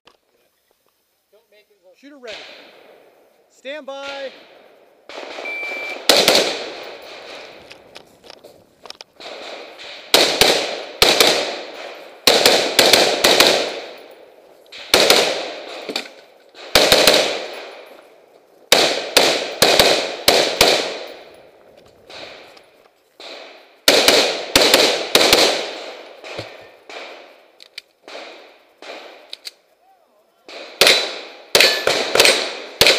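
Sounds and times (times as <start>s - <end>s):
rifle shots with echo: 2.2s - 3.1s, 4.0s - 7.8s, 9.2s - 18.0s, 18.7s - 22.6s, 23.2s - 29.3s, 30.5s - 32.9s.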